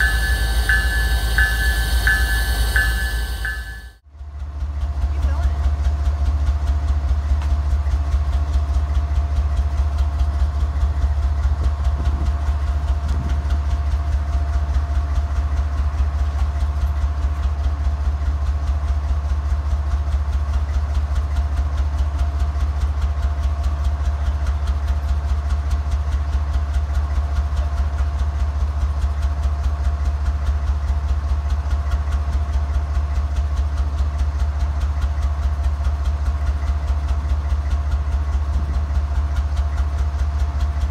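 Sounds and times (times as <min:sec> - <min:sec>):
steady whine: 0:00.0 - 0:04.0
locomotive engine idling throb: 0:00.0 - 0:40.9.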